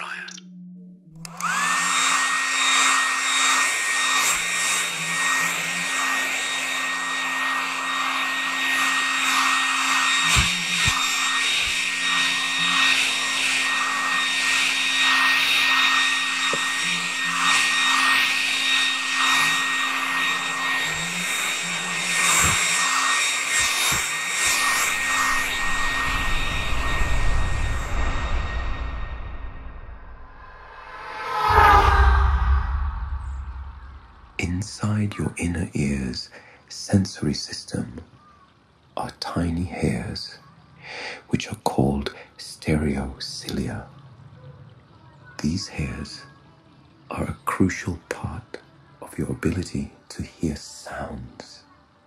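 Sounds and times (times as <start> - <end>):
hair dryer motor whine: 1.2 - 34.4
rush of blown air: 25.6 - 34.4.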